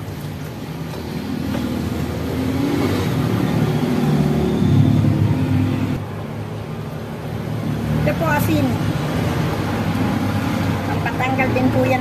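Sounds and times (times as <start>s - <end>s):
motor engine revving: 1.2s - 6.0s.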